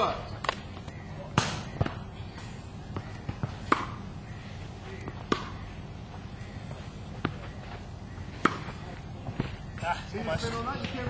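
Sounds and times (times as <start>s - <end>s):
tennis ball struck by racket: 1.3s - 2.0s, 2.9s - 4.1s, 5.0s - 5.6s, 8.4s - 9.5s.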